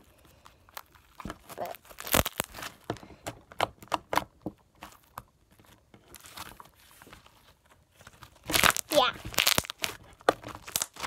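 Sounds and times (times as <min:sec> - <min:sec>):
slime squeezed with wet pops: 0:08.5 - 0:10.0.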